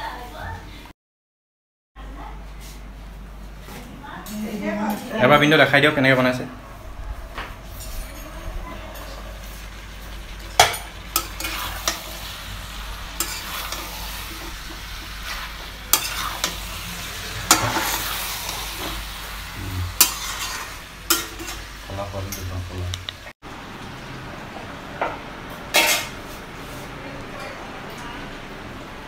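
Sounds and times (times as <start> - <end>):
curry sizzling in a pan: 7.5 - 27.5
metal spatula scraping a pan: 7.6 - 22.4.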